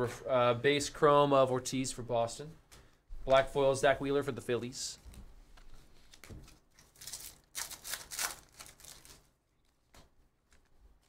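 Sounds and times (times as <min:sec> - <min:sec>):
foil wrapper tearing and crinkling: 0:06.2 - 0:09.3.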